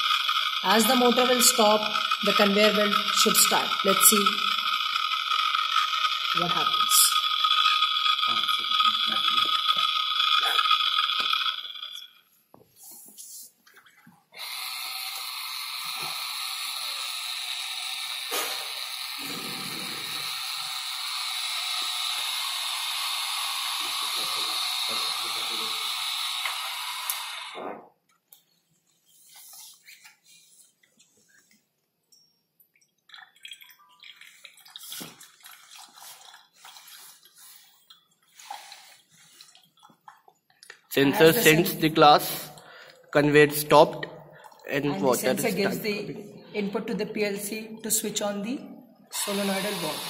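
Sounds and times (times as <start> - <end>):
electric motor running conveyor: 0.0 - 12.2, 14.4 - 27.7, 40.9 - 42.5, 49.1 - 50.0
liquid trickling into metal cup: 0.0 - 12.2, 13.7 - 27.4, 32.6 - 43.6, 44.3 - 45.8.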